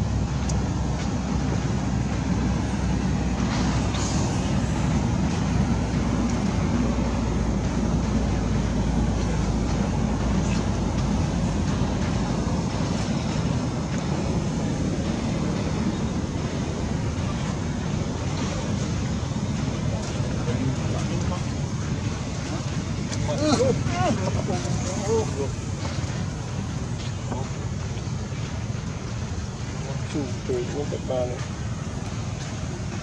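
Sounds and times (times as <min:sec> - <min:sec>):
steady low rumble: 0:00.0 - 0:33.0
hiss: 0:03.4 - 0:05.0.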